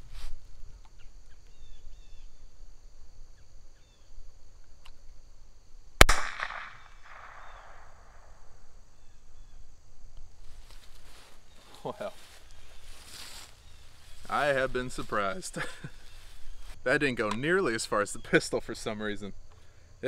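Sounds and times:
rifle shot echoing: 0:06.0 - 0:08.4.

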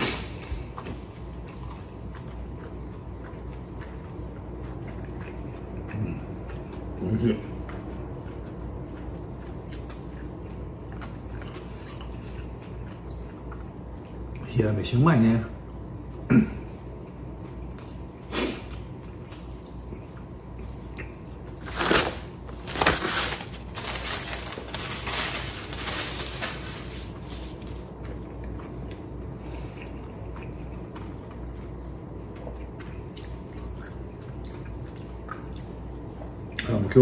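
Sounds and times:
tissue rustling: 0:21.6 - 0:27.8.

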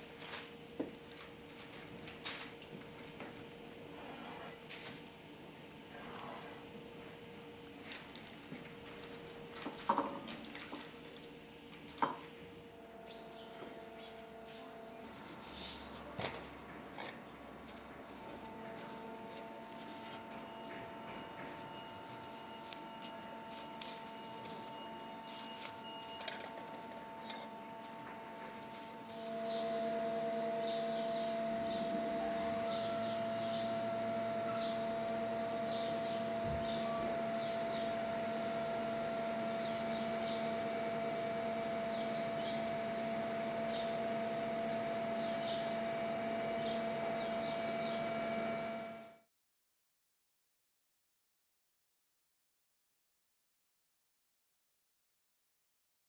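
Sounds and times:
steady machine hum: 0:00.0 - 0:16.6, 0:17.4 - 0:49.3
bubble wrap crinkling: 0:21.4 - 0:27.0.

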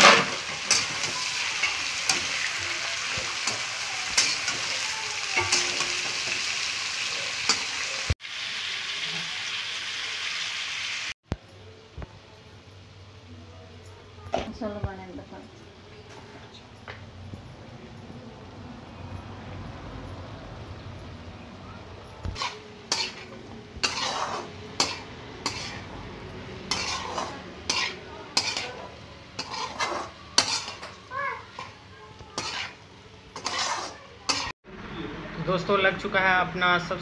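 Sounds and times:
metal spatula scraping wok: 0:00.0 - 0:08.0, 0:22.2 - 0:34.5
oil sizzling: 0:00.0 - 0:11.2, 0:20.2 - 0:34.6.

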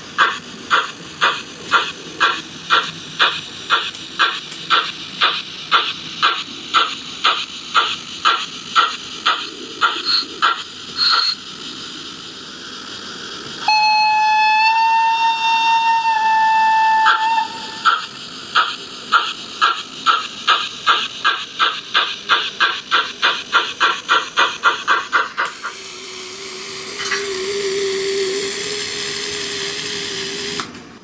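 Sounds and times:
steam hiss: 0:00.0 - 0:31.0
steam locomotive chuffing: 0:00.0 - 0:31.0
steam whistle: 0:13.6 - 0:18.1, 0:26.6 - 0:30.6.

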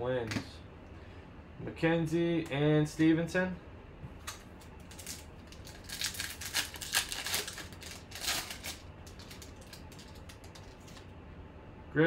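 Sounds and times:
foil wrapper tearing and crinkling: 0:04.9 - 0:11.0.

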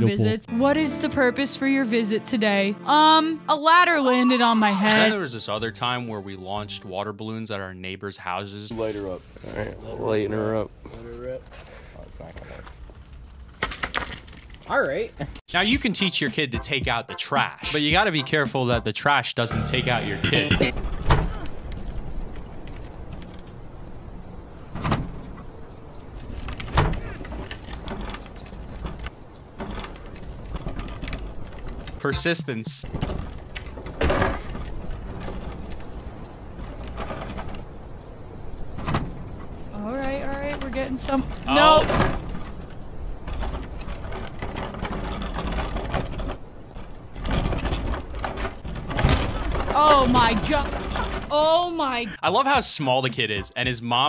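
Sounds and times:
bin wheels rumbling on concrete: 0:19.6 - 0:52.6.

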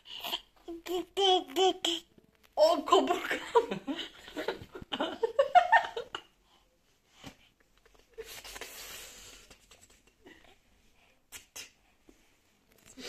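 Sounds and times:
laughter: 0:03.3 - 0:06.3.

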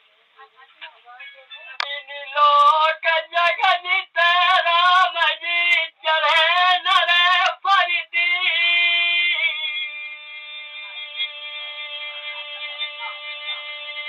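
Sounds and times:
man singing folk song: 0:01.8 - 0:14.0.

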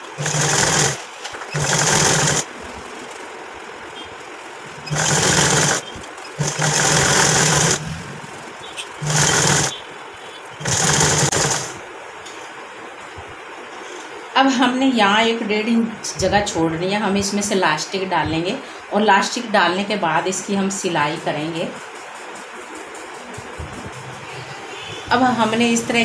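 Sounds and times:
sewing machine stitching: 0:00.0 - 0:02.5, 0:04.7 - 0:09.8, 0:10.6 - 0:11.8.

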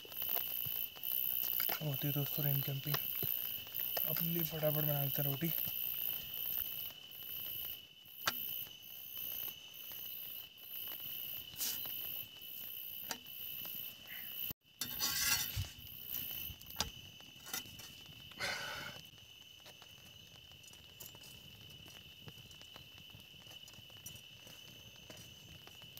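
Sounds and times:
night insects chirping: 0:00.0 - 0:25.9.

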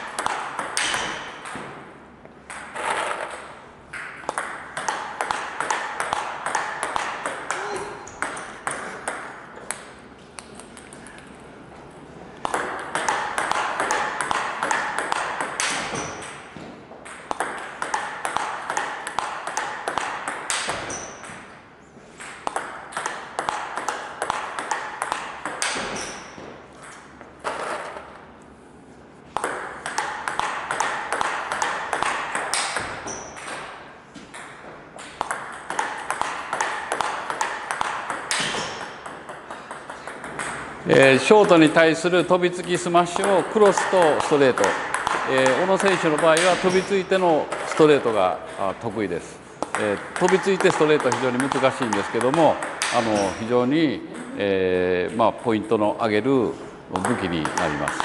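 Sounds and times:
ping pong ball clicks: 0:03.9 - 0:11.1, 0:12.4 - 0:16.4, 0:17.0 - 0:21.5, 0:22.2 - 0:27.1, 0:29.3 - 0:33.7, 0:34.3 - 0:40.6, 0:49.6 - 0:53.3.

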